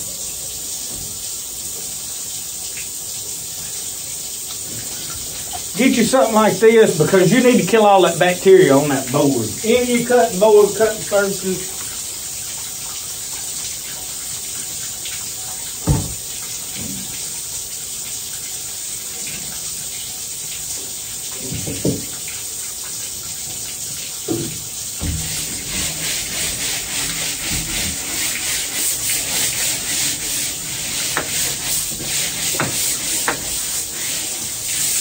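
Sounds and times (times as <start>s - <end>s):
water running from a hose: 0.0s - 35.0s
knocks on cutting board: 15.8s - 16.2s, 31.1s - 31.5s, 32.6s - 33.5s
scrubbing strokes on a board: 25.0s - 35.0s.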